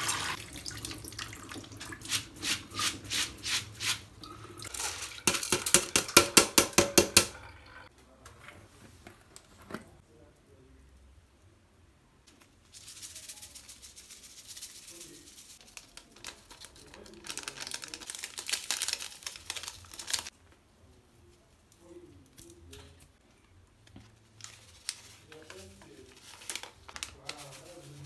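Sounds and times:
spice shaker rattling: 12.6s - 20.3s
plastic sachet crinkling: 15.6s - 20.4s, 24.3s - 28.0s.

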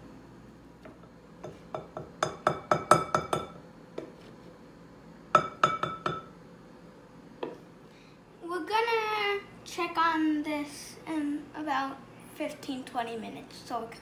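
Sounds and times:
glass bowl clinking: 5.4s - 6.3s.

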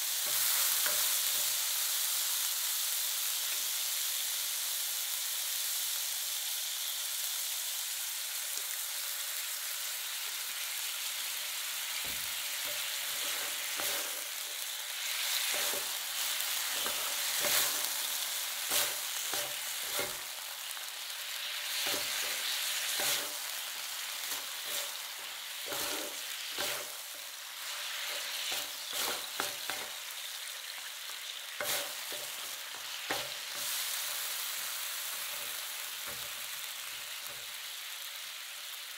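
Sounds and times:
meat sizzling on a griddle: 0.0s - 38.9s
spatulas scraping and tapping griddle: 0.2s - 1.6s, 12.0s - 20.3s, 21.7s - 23.5s, 24.2s - 27.1s, 27.7s - 30.0s, 31.6s - 33.8s.

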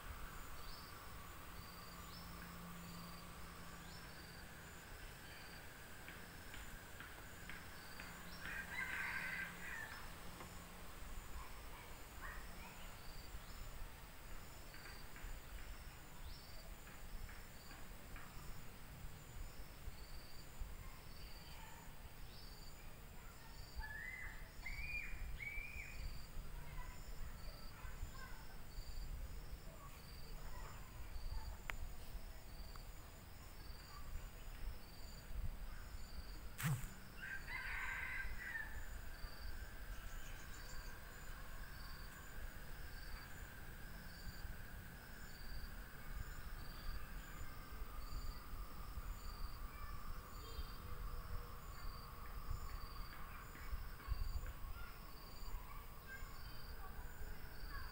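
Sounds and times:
crickets chirping: 0.0s - 57.9s
rooster crowing: 8.5s - 10.0s, 36.6s - 38.8s
sharp knock: 36.6s - 37.0s.

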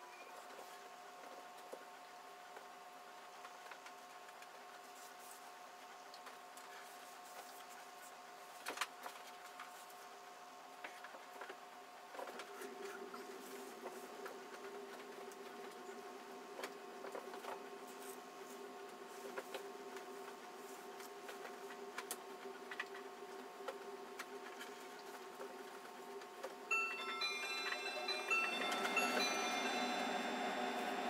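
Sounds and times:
steady hum: 26.6s - 31.0s.

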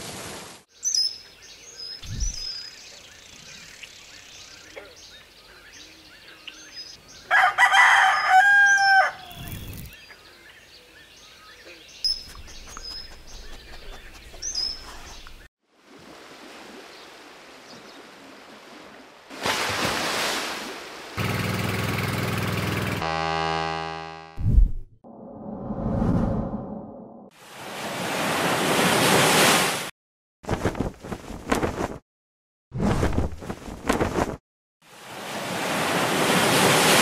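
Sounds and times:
small birds chirping: 0.7s - 7.3s, 9.2s - 15.5s
rooster crowing: 7.3s - 9.3s
buzzing tone: 22.8s - 24.8s
short low thump: 24.4s - 25.0s.

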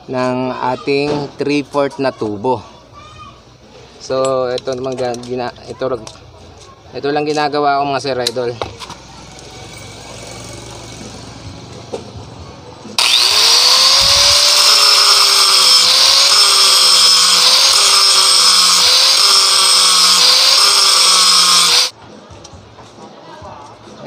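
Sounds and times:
angle grinder grinding steel: 13.0s - 21.9s.

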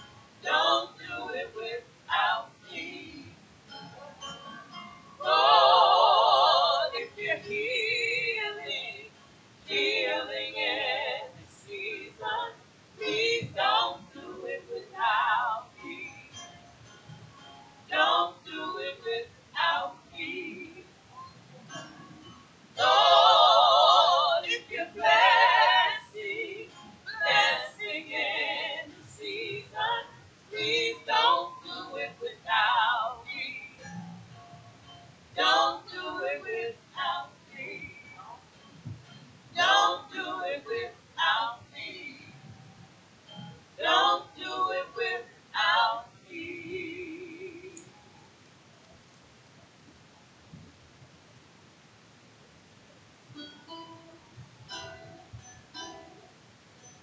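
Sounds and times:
woman singing a hymn: 0.4s - 3.4s, 5.2s - 16.4s, 17.9s - 20.9s, 22.8s - 33.9s, 35.4s - 38.5s, 39.5s - 42.5s, 43.8s - 47.9s.

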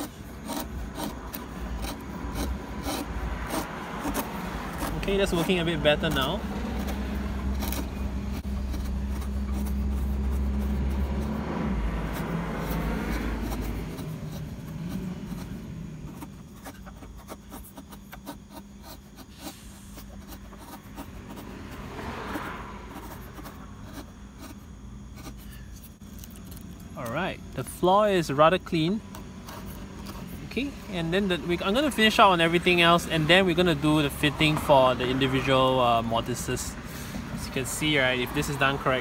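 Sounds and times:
chisel scraping wood: 0.0s - 26.7s, 27.8s - 36.6s.

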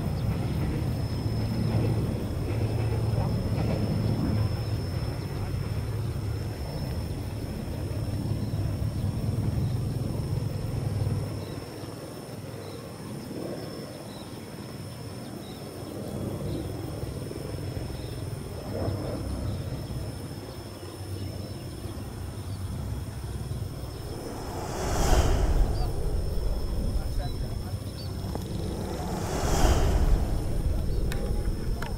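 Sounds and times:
high-pitched whine: 23.7s - 31.9s
low rumble: 23.7s - 31.9s.

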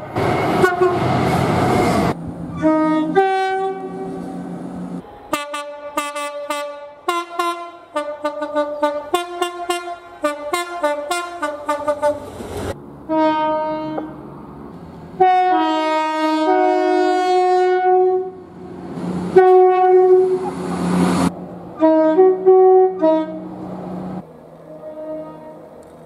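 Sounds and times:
passing train noise: 0.0s - 26.0s
train horn blasts: 0.6s - 1.1s, 2.5s - 4.3s, 5.0s - 12.3s, 13.1s - 14.2s, 15.2s - 18.4s, 19.4s - 20.5s, 21.8s - 23.5s, 24.6s - 25.7s.

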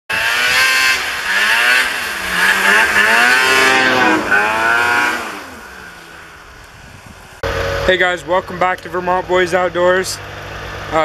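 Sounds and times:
engine revving hard: 0.1s - 6.5s.

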